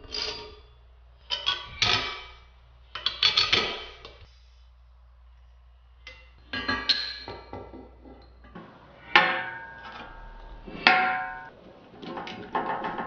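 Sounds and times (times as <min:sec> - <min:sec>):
sharp ringing metal strikes: 0:08.9 - 0:11.5.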